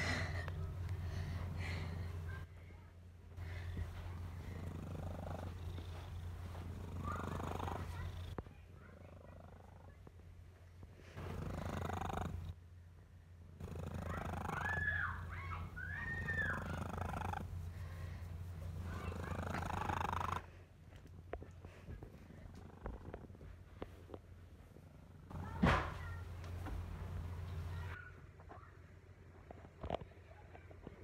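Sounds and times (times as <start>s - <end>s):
cat purring: 3.4s - 12.6s, 13.4s - 20.6s, 21.4s - 28.0s.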